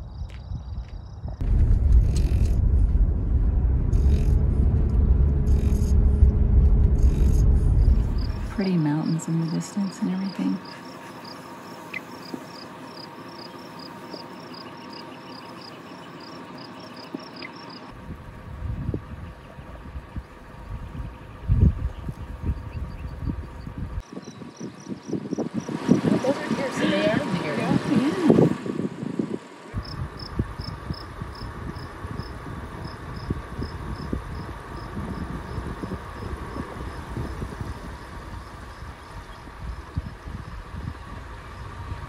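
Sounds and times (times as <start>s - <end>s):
insect chirping: 0.0s - 1.4s, 7.0s - 18.0s, 18.7s - 26.2s, 29.8s - 41.8s
outdoor background noise: 0.0s - 42.0s.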